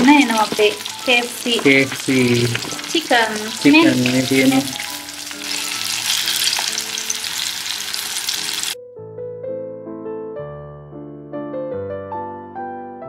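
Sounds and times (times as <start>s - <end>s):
chicken deep-frying in oil: 0.0s - 8.8s
piano music: 0.0s - 13.0s.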